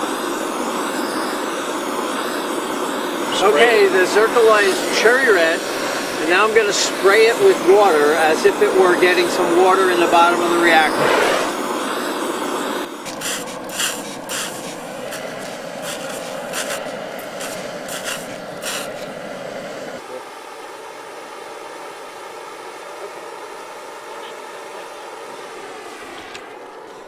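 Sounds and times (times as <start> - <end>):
water hissing on hot metal: 0.0 - 20.0
steady background hiss: 0.0 - 27.0.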